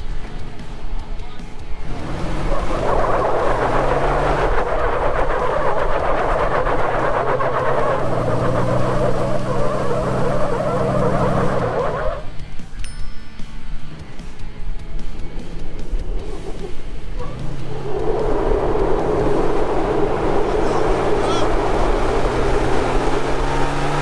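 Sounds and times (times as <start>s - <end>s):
tyres spinning on asphalt: 1.6s - 12.4s, 14.7s - 24.0s
engines straining at full throttle: 1.7s - 12.4s, 13.9s - 24.0s.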